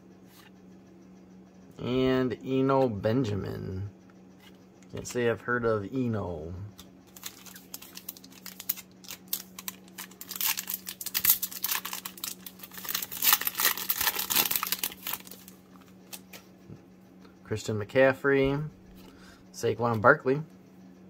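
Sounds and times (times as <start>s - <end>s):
foil wrapper tearing and crinkling: 7.1s - 16.2s.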